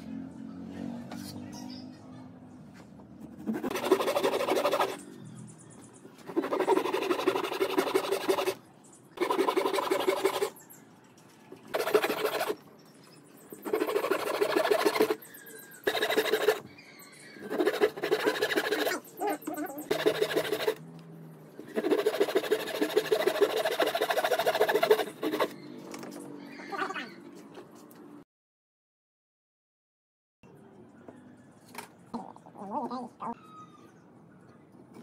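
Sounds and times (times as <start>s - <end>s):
hand saw cutting wood: 3.2s - 5.0s, 6.2s - 8.6s, 9.2s - 10.6s, 11.6s - 12.6s, 13.5s - 20.8s, 21.6s - 25.6s.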